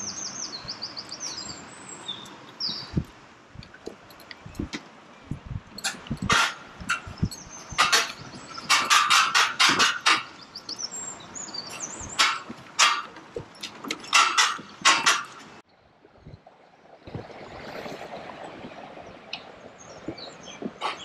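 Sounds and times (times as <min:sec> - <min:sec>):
footsteps on wooden deck: 0:06.0 - 0:15.5, 0:19.9 - 0:21.0.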